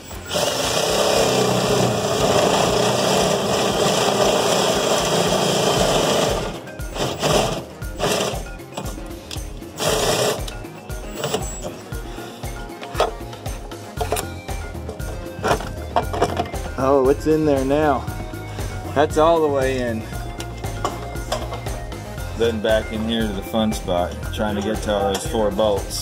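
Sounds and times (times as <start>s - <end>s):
cordless drill boring through steel: 0.0s - 8.4s, 9.8s - 10.5s.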